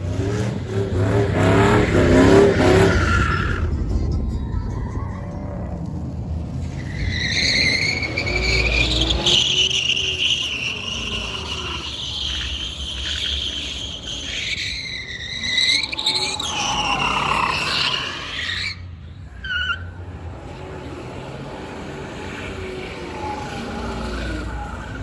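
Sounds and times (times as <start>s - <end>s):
tyres screeching: 6.4s - 25.0s.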